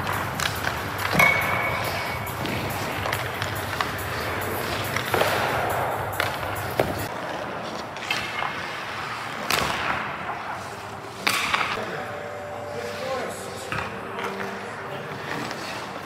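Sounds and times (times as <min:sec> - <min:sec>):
pucks knocking: 0:00.0 - 0:07.1
skate blades scraping ice: 0:00.0 - 0:11.8, 0:14.4 - 0:16.0.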